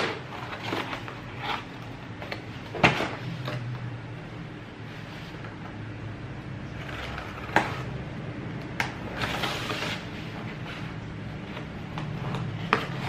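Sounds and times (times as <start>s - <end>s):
cardboard scraping and rustling: 0.0s - 3.6s, 9.1s - 13.0s.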